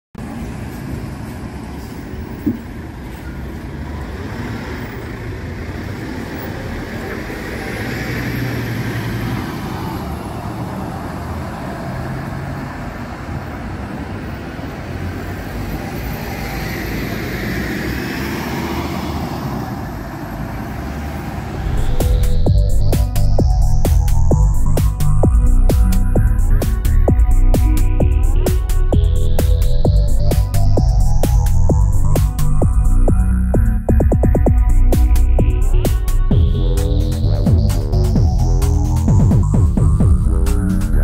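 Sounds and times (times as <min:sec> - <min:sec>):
buses and traffic driving past: 0:00.2 - 0:41.0.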